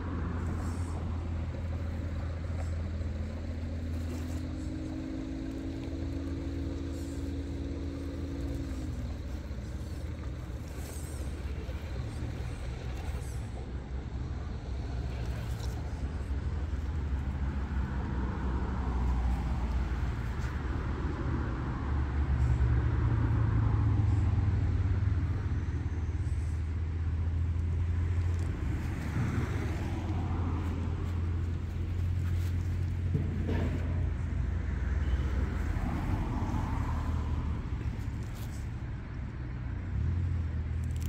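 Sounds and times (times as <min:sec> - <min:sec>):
electric motor and gears whining: 0:00.2 - 0:20.8.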